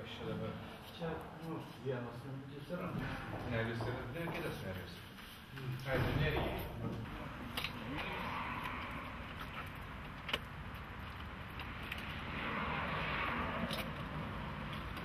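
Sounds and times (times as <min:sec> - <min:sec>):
traffic noise: 0:00.0 - 0:15.0
car passing: 0:05.9 - 0:15.0.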